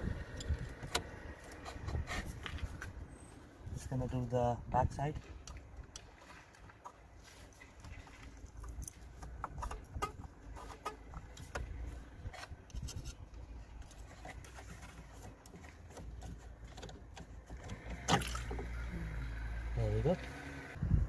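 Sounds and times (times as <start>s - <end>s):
wind rumble on microphone: 0.0s - 6.0s, 7.9s - 13.8s, 20.8s - 21.0s
hand tools clicking and tapping: 8.6s - 11.7s.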